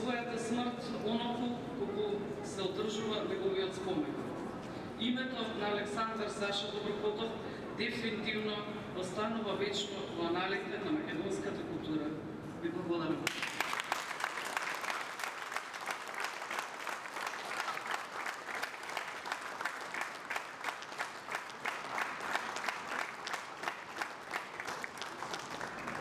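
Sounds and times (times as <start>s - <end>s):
audience applauding: 13.3s - 26.0s.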